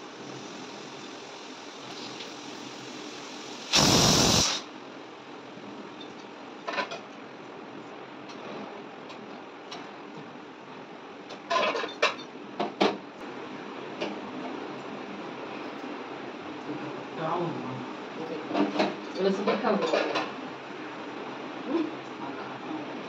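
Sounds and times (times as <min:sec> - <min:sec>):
steady background hiss: 0:00.0 - 0:08.2.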